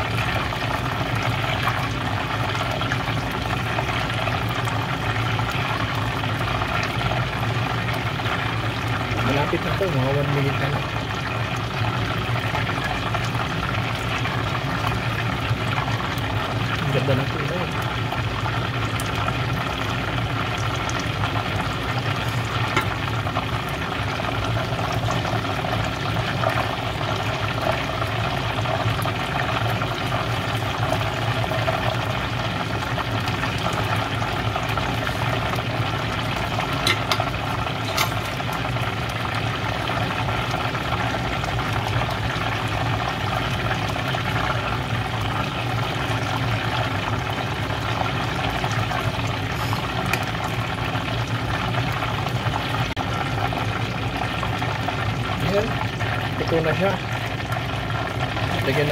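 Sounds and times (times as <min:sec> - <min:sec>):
oil bubbling and sizzling: 0:00.0 - 0:58.9.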